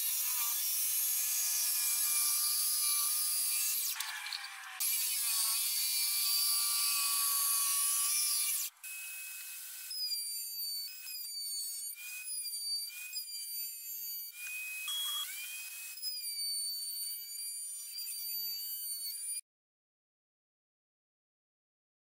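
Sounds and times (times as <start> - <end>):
jigsaw cutting wood: 0.0 - 13.2, 14.0 - 17.2.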